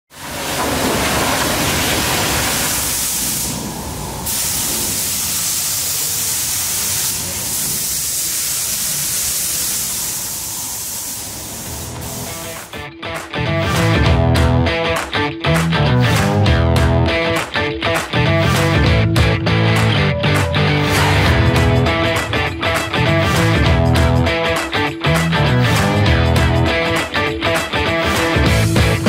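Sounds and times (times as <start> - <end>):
pressure-washer jet spraying: 0.2 - 12.7
paint spray gun hissing: 2.7 - 3.6, 4.3 - 12.7.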